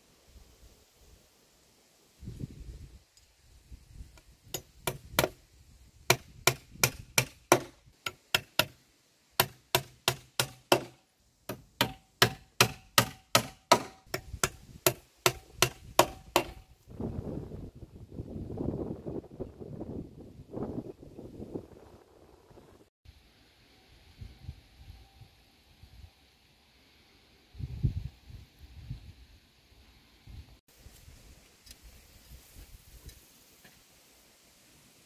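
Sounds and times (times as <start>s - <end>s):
hammer striking nails: 4.6s - 5.4s, 6.1s - 8.8s, 9.4s - 16.6s
wind buffeting microphone: 14.1s - 22.9s, 27.6s - 29.3s.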